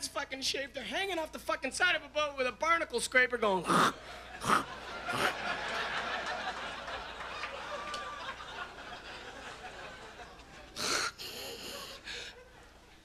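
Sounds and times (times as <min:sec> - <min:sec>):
audience laughing: 0:03.9 - 0:13.0.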